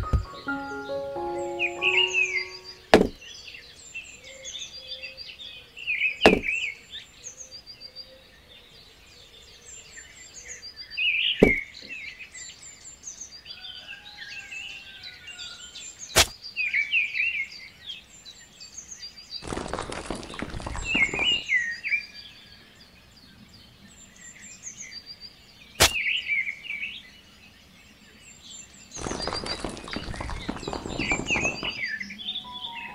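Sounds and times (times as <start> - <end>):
birds chirping: 0.0 - 5.1, 19.0 - 32.9
sharp knocks: 2.9 - 3.2, 6.3 - 6.5.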